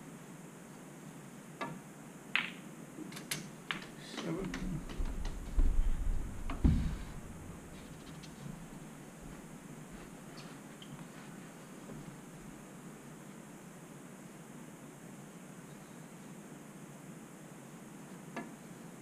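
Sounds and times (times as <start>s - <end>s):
snooker balls clicking: 2.4s - 8.7s
low thumps and rumbling: 4.3s - 9.4s.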